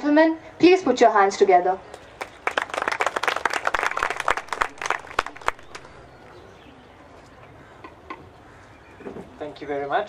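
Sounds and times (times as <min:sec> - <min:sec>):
audience clapping: 0:01.9 - 0:06.2.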